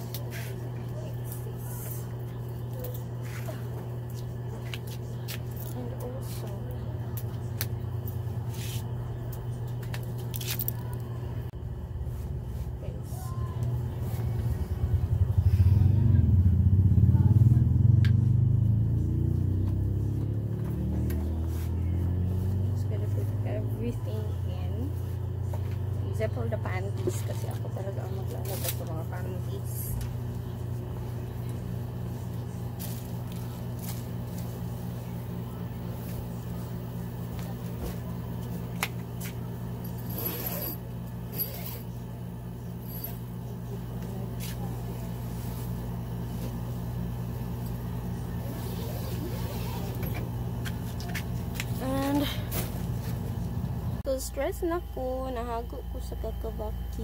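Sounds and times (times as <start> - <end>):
vehicle engine passing by: 14.0 - 24.4.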